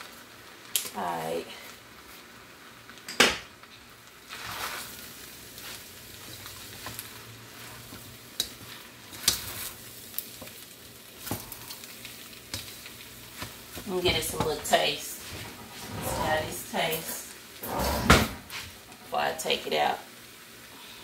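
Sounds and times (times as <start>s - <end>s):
fried rice sizzling in a pan: 0.0s - 15.5s, 16.6s - 17.6s, 18.5s - 21.0s
spatula knocking and scraping pan: 13.4s - 16.7s.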